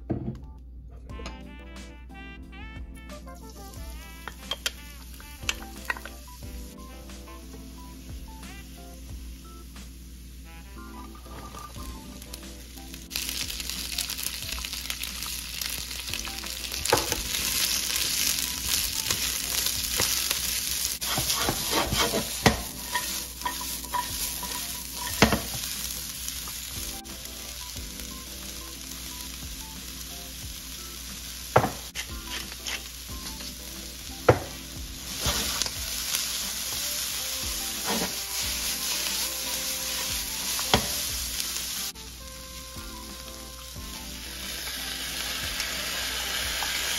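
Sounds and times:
vegetables sizzling in a wok: 3.2 - 46.9
spatula knocking and scraping pan: 21.0 - 25.7, 36.7 - 41.0.

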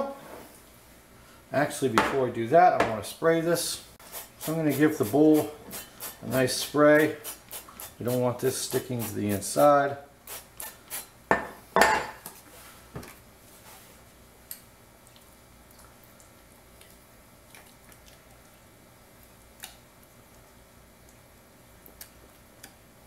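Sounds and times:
dishes clinking and knocking: 11.3 - 12.2.

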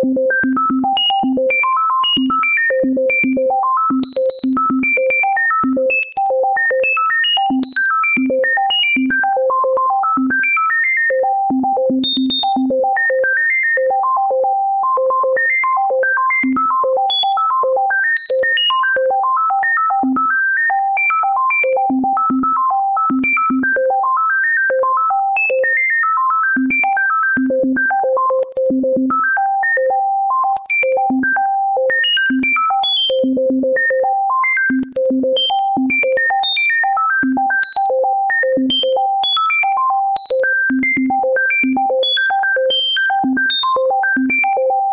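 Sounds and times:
synthesized keyboard tones: 41.6 - 44.9.

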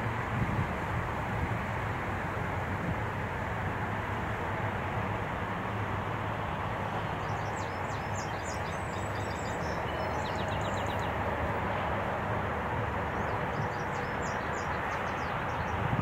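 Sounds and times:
wind through foliage: 0.0 - 16.0
songbirds chirping: 6.4 - 11.8, 12.8 - 15.9.

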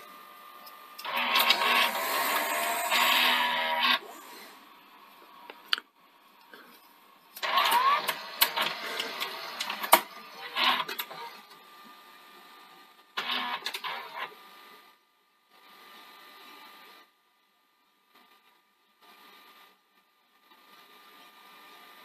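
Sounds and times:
tape recorder mechanism clicking and whirring: 1.0 - 4.1, 7.4 - 11.6, 13.2 - 14.3.

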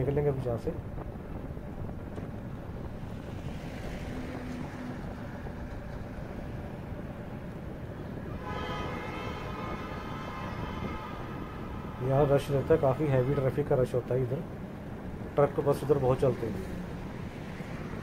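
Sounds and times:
vehicle road noise on highway: 0.0 - 18.0
vehicle horn long multi-tone note: 8.2 - 14.0.

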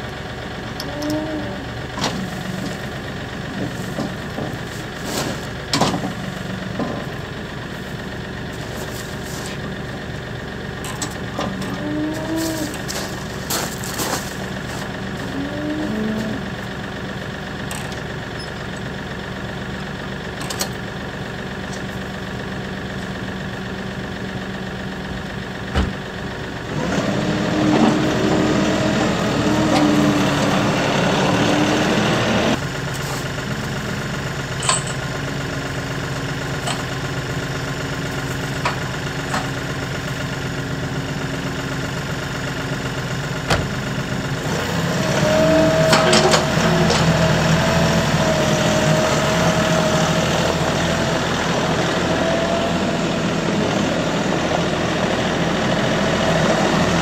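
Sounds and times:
engine whine: 0.0 - 57.0
tractor diesel engine idling: 0.0 - 57.0
metal clanks: 34.6 - 35.0.

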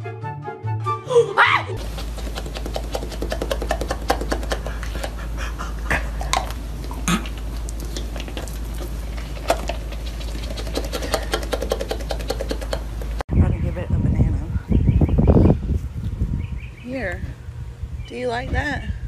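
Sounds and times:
dog smacking its lips: 1.8 - 13.2
steady low hum: 1.8 - 19.0.

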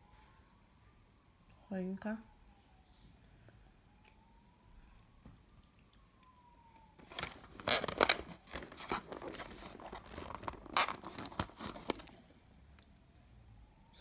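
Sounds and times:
cardboard tearing: 7.0 - 12.2
plastic tray crinkling: 7.0 - 12.2.

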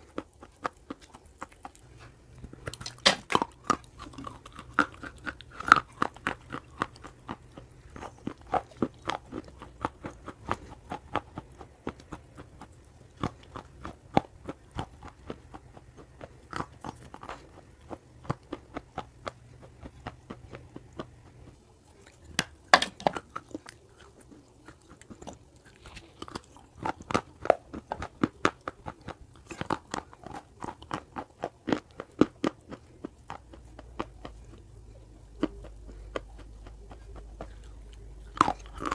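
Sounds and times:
crunching and chewing clay: 0.0 - 38.9.

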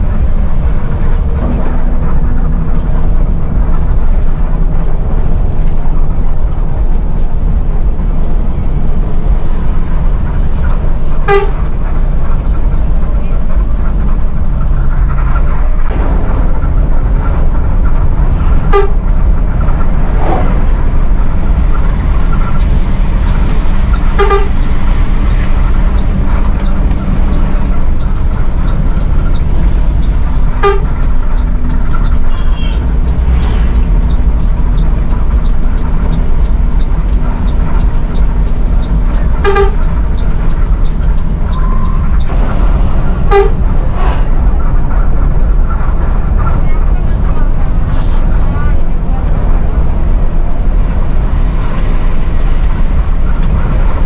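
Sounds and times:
diesel engine running: 0.0 - 54.0
horn tooting: 11.0 - 12.0, 18.4 - 21.4, 23.8 - 34.2, 38.8 - 40.7, 41.5 - 45.0.

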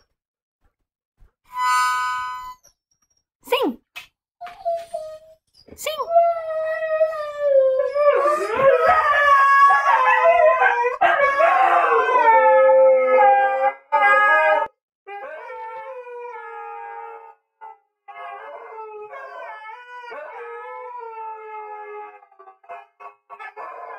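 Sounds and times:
dogs howling together: 6.3 - 23.9.

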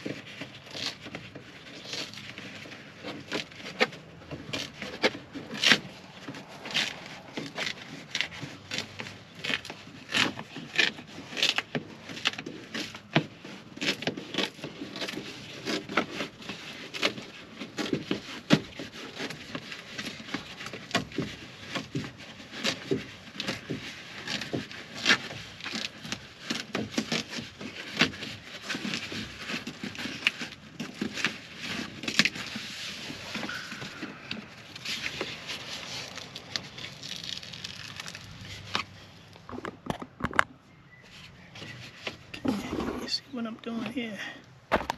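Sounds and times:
plastic sheet crinkling peeled off: 21.6 - 39.4.

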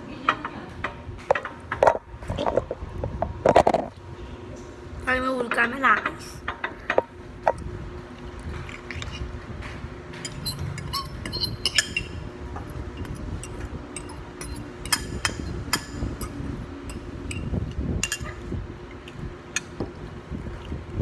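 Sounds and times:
fork clinking on dishes: 10.2 - 12.2.

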